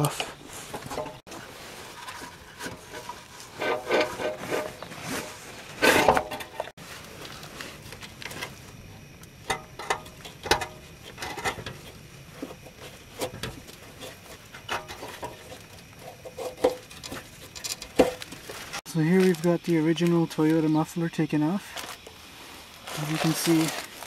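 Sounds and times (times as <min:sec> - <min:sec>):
muffler knocking and scraping: 0:00.0 - 0:06.7, 0:09.4 - 0:18.8.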